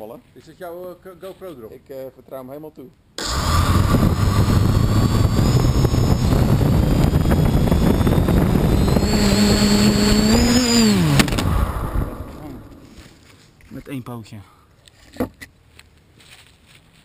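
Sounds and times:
quadcopter motors buzzing: 3.2 - 13.1.

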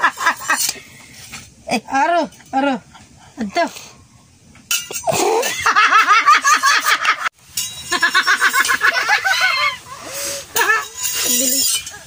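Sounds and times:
person squealing: 5.0 - 5.6
high-pitched laughter: 7.9 - 12.0.

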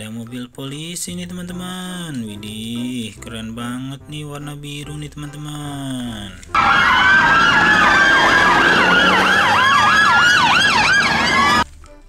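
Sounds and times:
police siren wailing: 6.6 - 11.6
police siren yelp sweeps: 6.6 - 11.6.

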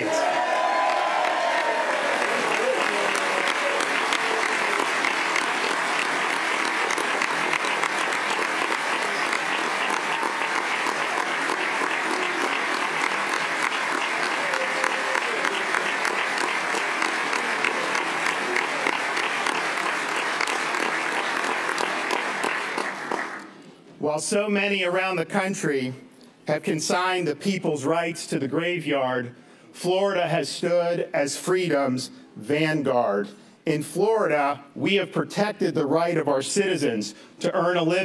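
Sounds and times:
crowd applauding: 0.0 - 23.6.

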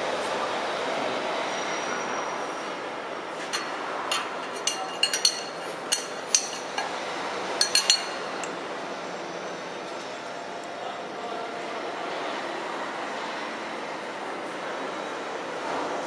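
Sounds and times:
steady background noise: 0.0 - 16.0
metal tools clinking on bolts: 3.4 - 7.0, 7.6 - 8.5.

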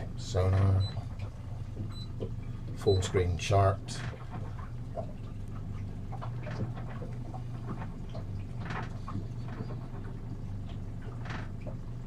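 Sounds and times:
steady low hum: 0.0 - 12.0
light clicks and rustles: 3.8 - 12.0.

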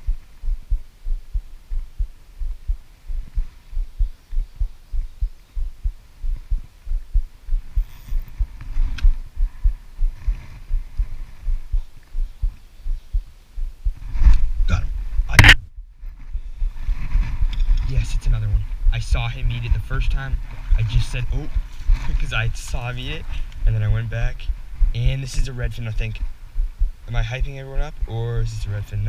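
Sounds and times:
soft low thumping: 0.0 - 28.1
knocks and rustles on camera: 0.1 - 12.6.

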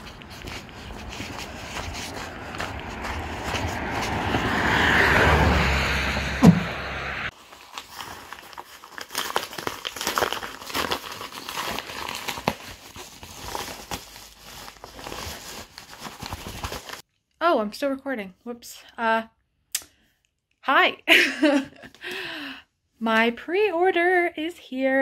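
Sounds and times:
paper envelope crinkling: 0.0 - 4.2, 7.3 - 17.0
footsteps on gravel and snow: 0.0 - 5.5
sharp knock: 6.4 - 6.8.

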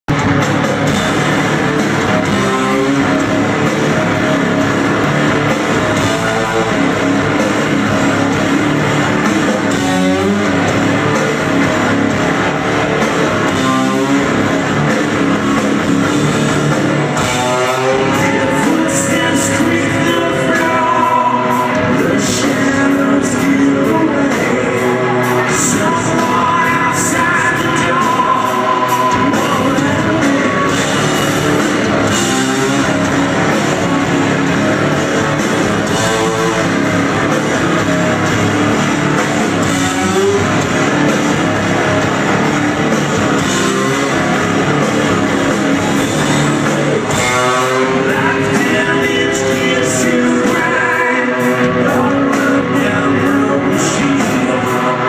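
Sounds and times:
live rock band playing: 0.0 - 55.0
person singing: 17.2 - 31.3, 45.8 - 55.0.

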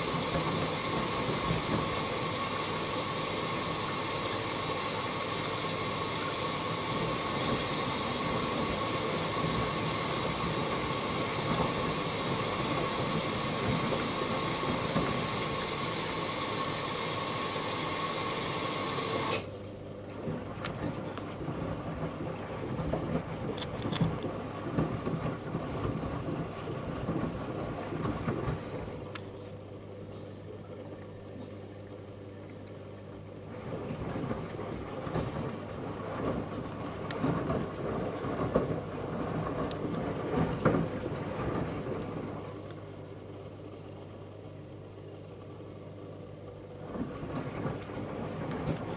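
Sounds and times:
water spraying into washing machine drum: 0.0 - 19.6
wet laundry sloshing and thudding: 20.0 - 29.1, 33.4 - 42.6, 46.7 - 48.9.

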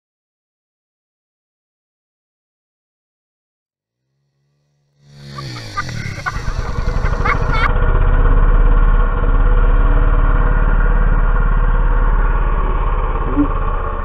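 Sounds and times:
atv engine running: 4.0 - 14.0.

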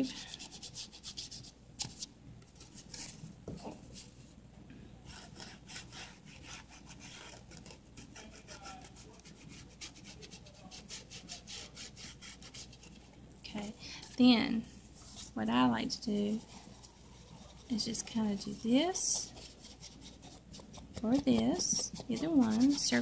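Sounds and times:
ink pad scratching on paper: 16.1 - 23.0.

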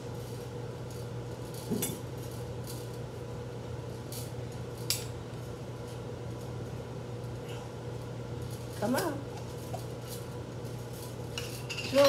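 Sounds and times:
low steady hum: 0.0 - 12.0
kitchenware clinking: 1.6 - 2.1, 11.3 - 12.0.

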